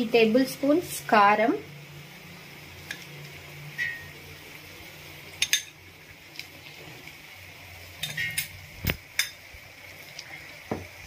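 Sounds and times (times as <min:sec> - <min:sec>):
utensils clinking on steel: 0:08.0 - 0:08.5.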